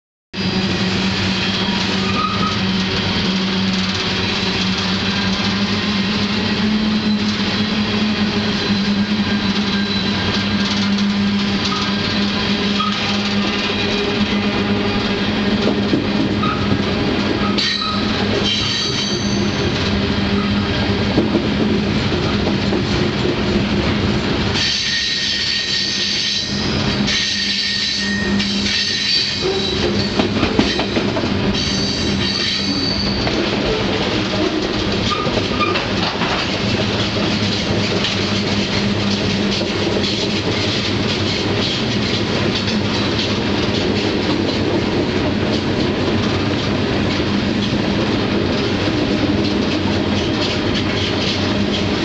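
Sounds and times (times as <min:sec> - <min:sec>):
train wheels rumbling on rail: 0:00.4 - 0:52.0.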